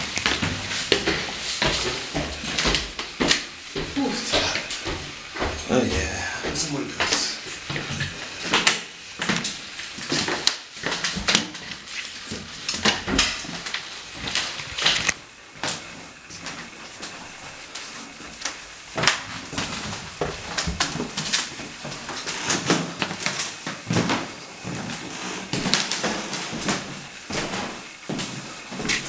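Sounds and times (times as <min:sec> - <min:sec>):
footsteps on hardwood floor: 0:00.0 - 0:09.4, 0:15.5 - 0:29.0.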